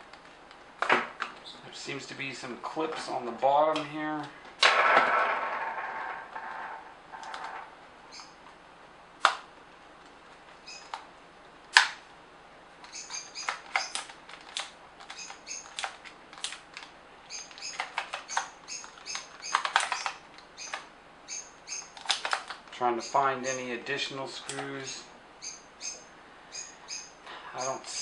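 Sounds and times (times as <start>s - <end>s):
plastic clicks: 5.7s - 7.6s, 12.8s - 20.9s, 21.9s - 22.8s, 24.4s - 24.9s
squeaky plastic creaks: 6.3s - 8.4s, 12.9s - 22.6s.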